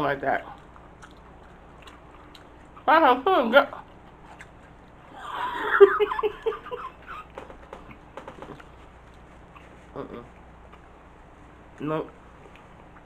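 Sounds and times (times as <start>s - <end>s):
person giggling: 5.1s - 7.5s.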